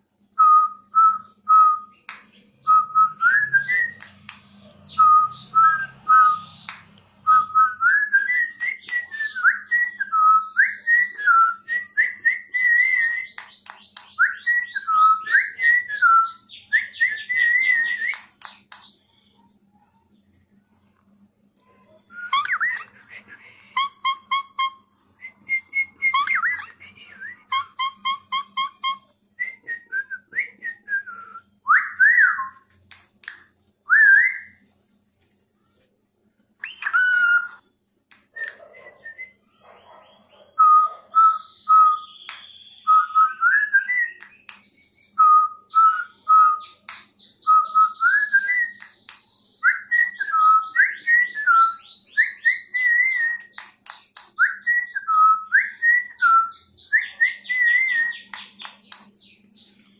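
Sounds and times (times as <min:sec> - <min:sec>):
whistled tune: 0:00.4 - 0:02.0, 0:02.6 - 0:04.1, 0:07.3 - 0:13.5, 0:22.1 - 0:23.0, 0:23.8 - 0:32.6, 0:33.9 - 0:34.6, 0:36.6 - 0:37.6, 0:40.6 - 0:44.3, 0:45.2 - 0:46.8, 0:49.6 - 0:53.6, 0:54.4 - 0:58.5.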